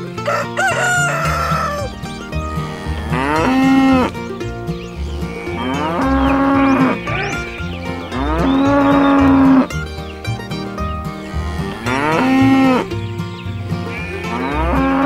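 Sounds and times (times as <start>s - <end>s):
background music with beat: 0.0s - 15.0s
cows mooing: 0.3s - 4.3s, 5.0s - 9.8s, 11.1s - 13.1s, 13.8s - 15.0s.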